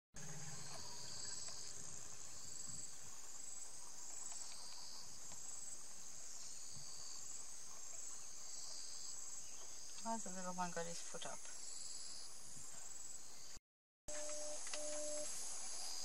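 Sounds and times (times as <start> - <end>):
insects trilling: 0.2 - 13.6.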